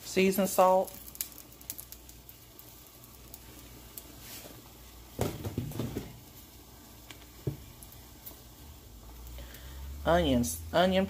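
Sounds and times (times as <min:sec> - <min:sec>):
spice shaker ticking: 0:00.8 - 0:04.1.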